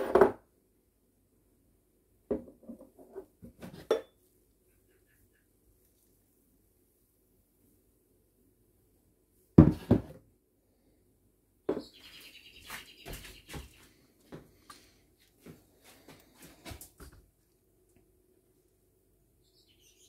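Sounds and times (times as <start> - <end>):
high chirping: 11.7 - 13.9, 19.4 - 20.0.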